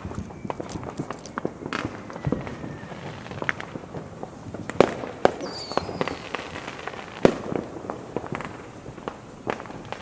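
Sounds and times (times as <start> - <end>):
firework pops and crackles: 0.0 - 10.0
fireworks bangs: 0.0 - 10.0
falling high whistle: 0.2 - 3.3, 5.4 - 6.3.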